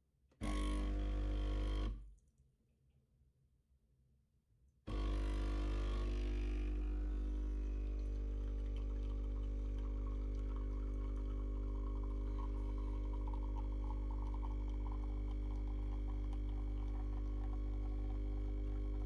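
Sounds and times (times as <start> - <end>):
espresso machine pump humming: 0.4 - 1.9, 4.9 - 19.0
espresso trickling into a cup: 7.1 - 19.0.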